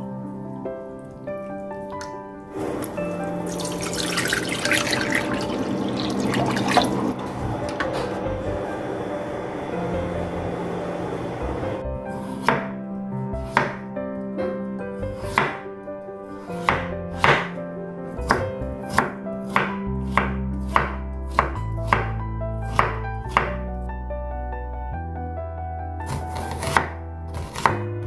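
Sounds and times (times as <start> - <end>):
soft background music: 0.0 - 28.0
knife hitting wooden cutting board: 16.6 - 17.5.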